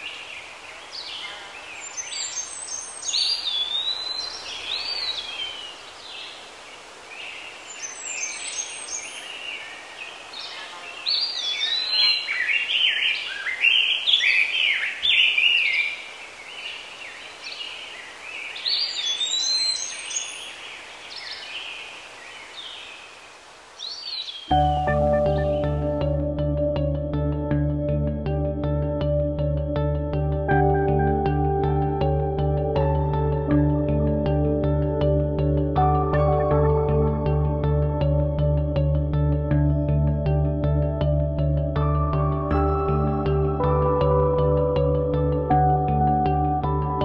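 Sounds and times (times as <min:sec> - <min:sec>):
songbirds singing: 0:00.0 - 0:26.2
faint outdoor hiss: 0:00.0 - 0:41.1.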